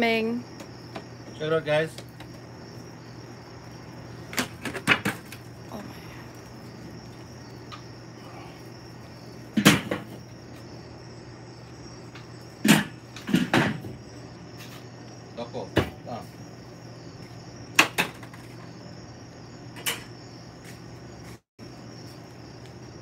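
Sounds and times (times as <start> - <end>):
crickets chirring: 0.0 - 23.0
metal clanks on grill: 19.8 - 20.2.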